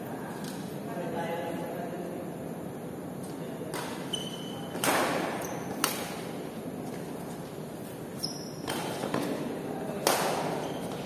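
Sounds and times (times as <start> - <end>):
shoes squeaking on court floor: 3.7 - 6.1, 6.8 - 9.5, 10.4 - 11.0
racket striking shuttlecock: 4.7 - 6.1, 10.0 - 10.6.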